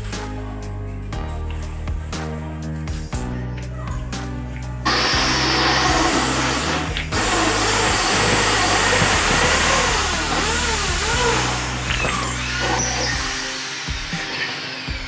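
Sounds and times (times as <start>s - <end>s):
background music: 0.0s - 15.0s
electric drill boring: 4.9s - 15.0s.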